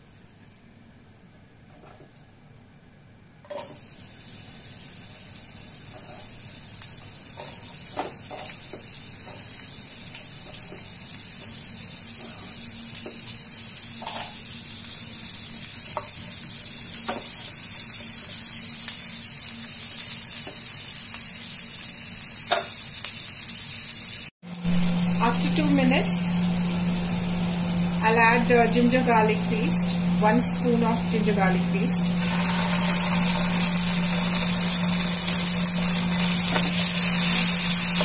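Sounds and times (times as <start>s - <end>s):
onion sizzling in oil: 3.5s - 38.0s.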